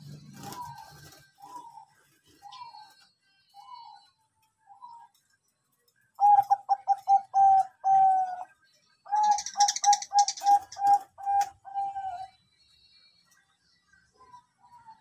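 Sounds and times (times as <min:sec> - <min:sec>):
dove cooing: 0:00.0 - 0:03.0, 0:06.2 - 0:08.5, 0:09.1 - 0:12.4.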